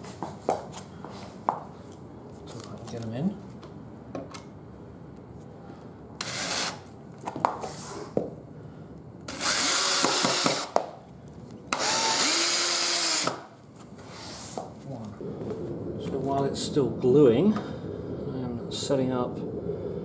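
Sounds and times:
cordless drill into wood: 6.2s - 6.9s, 9.3s - 10.8s, 11.7s - 13.6s.

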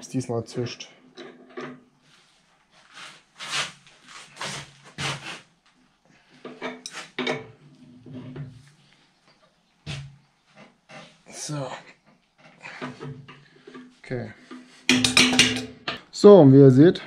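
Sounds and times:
metal fittings clinking: 14.5s - 16.0s.

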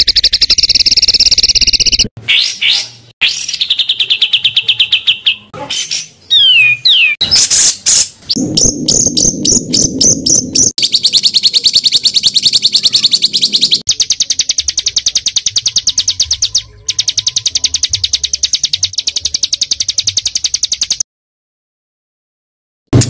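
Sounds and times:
songbird rapid trill: 6.3s - 21.0s.

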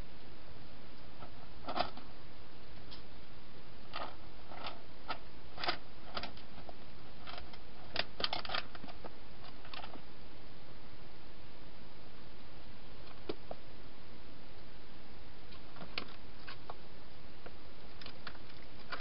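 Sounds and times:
steady hiss: 0.0s - 19.0s
hedgehog crunching and clicking: 3.9s - 10.0s, 17.9s - 19.0s.

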